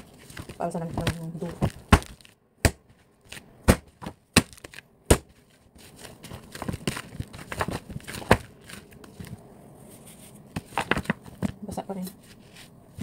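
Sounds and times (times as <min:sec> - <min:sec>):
hand patting dough: 0:00.0 - 0:09.5
dough slapped on table: 0:01.0 - 0:03.0, 0:03.6 - 0:05.4.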